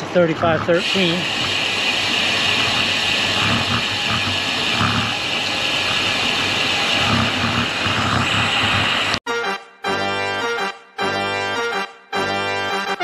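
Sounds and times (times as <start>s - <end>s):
bike tyres on concrete road: 0.0s - 9.2s
wind rush: 0.8s - 9.2s.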